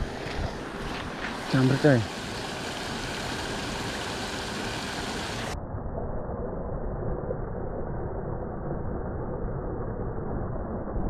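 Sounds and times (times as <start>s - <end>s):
water rushing from drain outlet: 1.3s - 5.6s.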